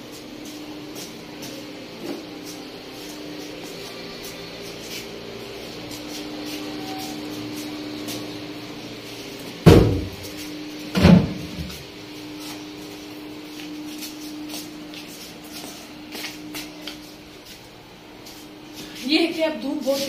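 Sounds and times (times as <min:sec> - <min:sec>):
steady low hum: 0:00.0 - 0:20.0
heavy thumps: 0:09.6 - 0:10.3.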